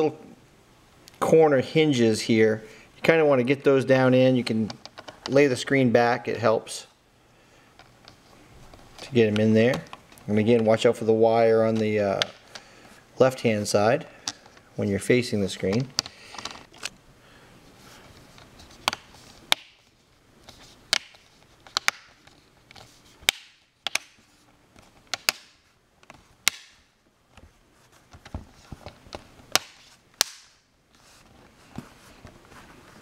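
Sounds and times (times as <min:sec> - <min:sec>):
plastic clips snapping into place: 0:20.9 - 0:22.2, 0:23.2 - 0:24.2, 0:25.1 - 0:26.8, 0:29.5 - 0:30.6.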